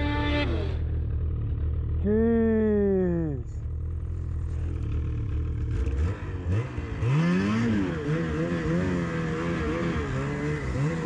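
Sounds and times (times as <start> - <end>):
snowmobile engine revving: 0.0 - 1.2, 4.4 - 11.0.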